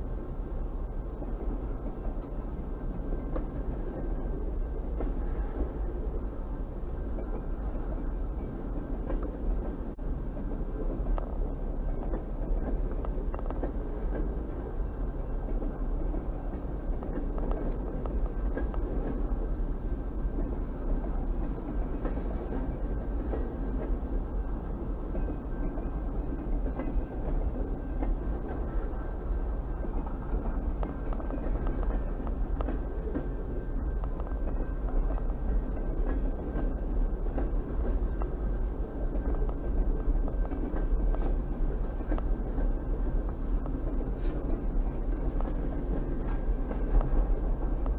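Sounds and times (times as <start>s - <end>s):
train wheels rumbling on rails: 0.0s - 47.9s
faint clicks: 29.9s - 33.3s.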